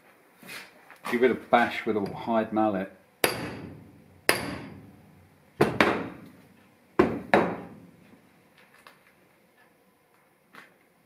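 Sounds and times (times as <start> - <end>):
mallet striking metal: 3.2 - 6.2.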